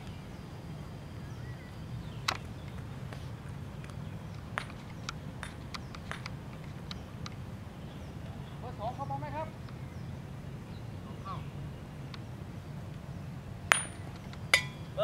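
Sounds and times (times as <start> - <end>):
mallet striking a ball: 5.4 - 6.3, 13.7 - 14.8.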